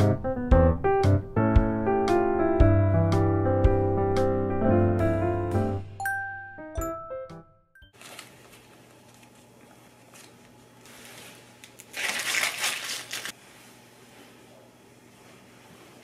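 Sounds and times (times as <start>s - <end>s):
plastic wrappers crinkling: 8.0s - 13.4s.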